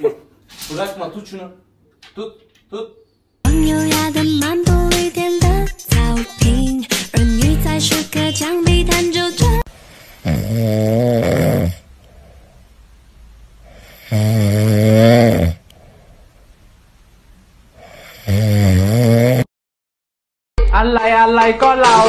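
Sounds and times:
dog snoring: 9.9s - 11.8s, 13.7s - 15.6s, 17.8s - 19.5s.

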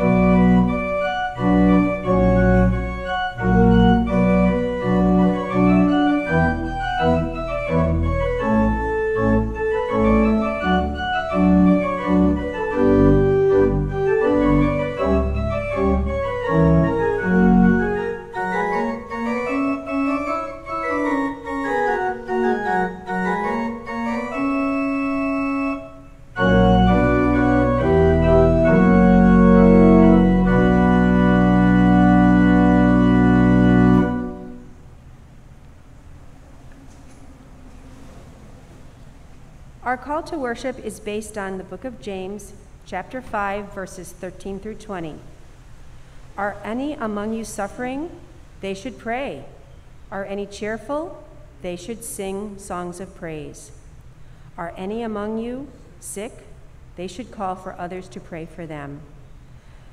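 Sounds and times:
church organ playing: 0.0s - 34.7s.

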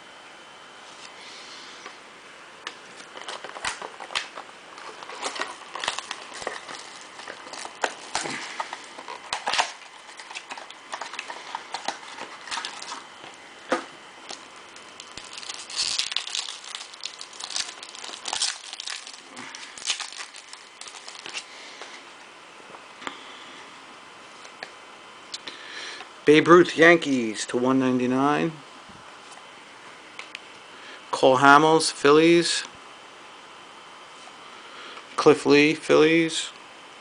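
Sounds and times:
foil wrapper crinkling and tearing: 3.0s - 13.4s, 14.2s - 21.5s.

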